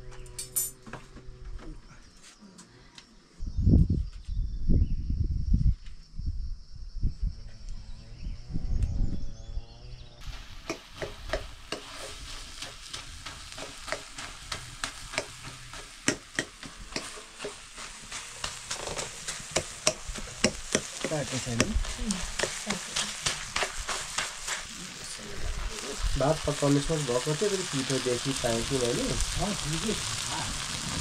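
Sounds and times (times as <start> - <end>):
food sizzling in a pan: 10.2 - 31.0
spoon scraping a pan: 10.4 - 24.8.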